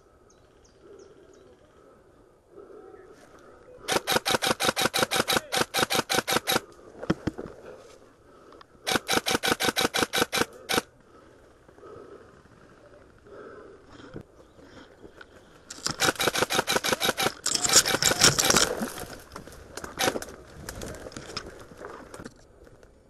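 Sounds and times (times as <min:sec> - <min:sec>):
airsoft gun rapid firing: 0:03.9 - 0:06.6, 0:08.9 - 0:10.9, 0:15.7 - 0:18.6.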